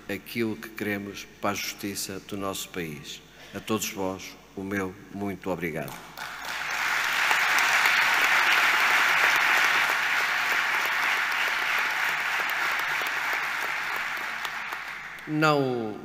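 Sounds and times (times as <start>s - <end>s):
audience applauding: 6.2s - 15.4s.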